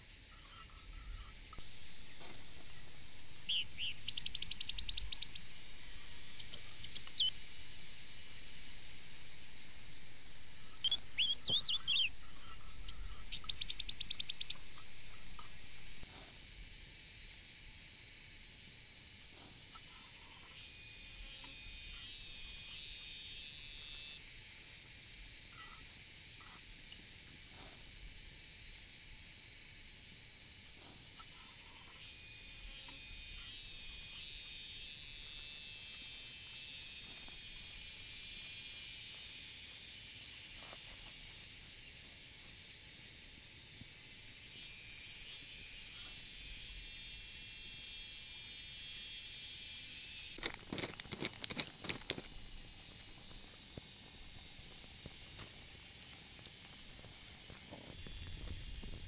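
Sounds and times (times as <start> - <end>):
insect chorus droning: 0.0 - 59.0
bird chirps: 2.8 - 5.5, 6.2 - 7.4, 10.6 - 15.8.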